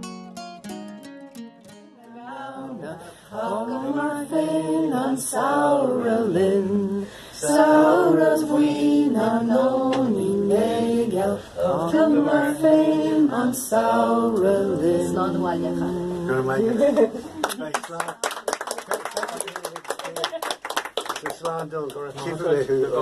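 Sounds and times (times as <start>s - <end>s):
person singing unaccompanied: 1.9s - 17.1s.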